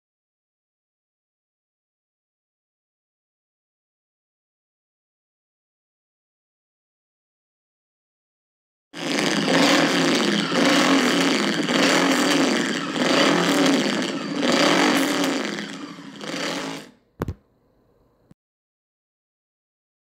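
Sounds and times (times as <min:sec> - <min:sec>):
motorcycle engine revving: 0:09.0 - 0:17.0.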